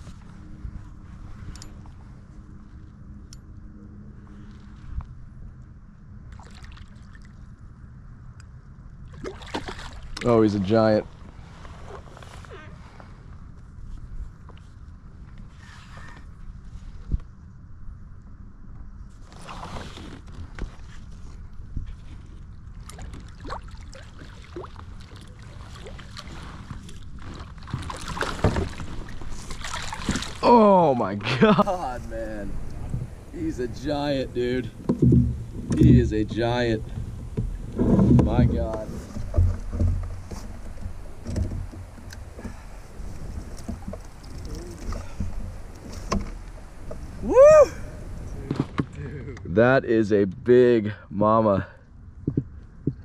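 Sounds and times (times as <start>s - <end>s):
wind rumbling on microphone: 0.0s - 50.4s
low rumble: 28.7s - 49.8s
person exclaiming: 47.2s - 48.0s.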